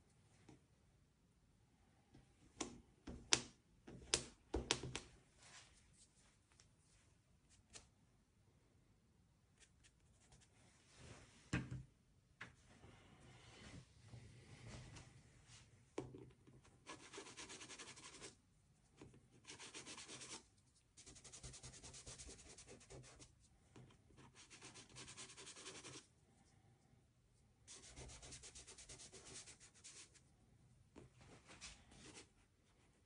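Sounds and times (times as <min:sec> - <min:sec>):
pastel scratching on paper: 0:16.8 - 0:18.4, 0:19.4 - 0:23.3, 0:24.2 - 0:26.1, 0:27.7 - 0:30.2.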